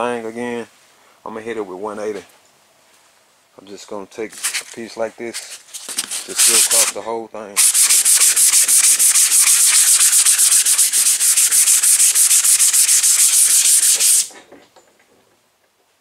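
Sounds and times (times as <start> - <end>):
hand sanding: 5.4 - 7.0, 7.6 - 14.3.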